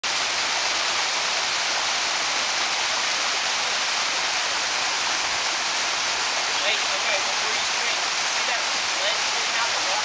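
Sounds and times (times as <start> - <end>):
creek water rushing: 0.0 - 10.0.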